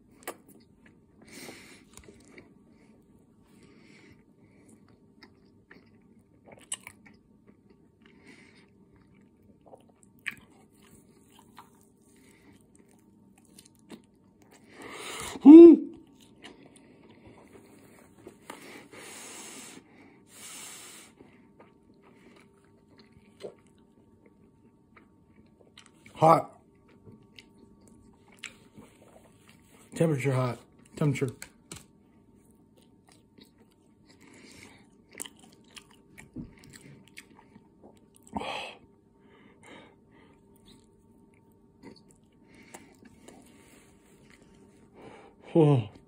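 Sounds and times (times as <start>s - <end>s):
person chewing: 4.6s - 15.2s, 15.9s - 18.0s, 21.2s - 26.1s, 26.7s - 29.8s, 32.4s - 38.4s, 40.2s - 44.8s.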